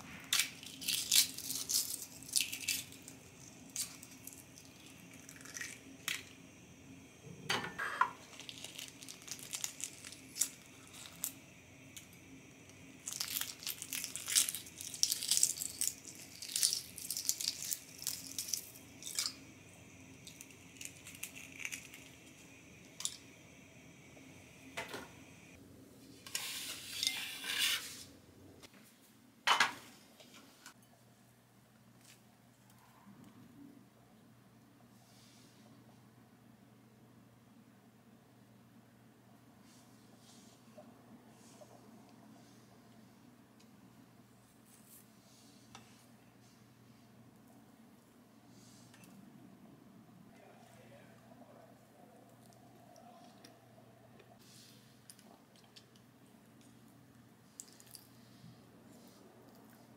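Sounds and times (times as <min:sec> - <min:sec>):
eggshell crackling: 0:00.3 - 0:06.4, 0:08.2 - 0:23.3.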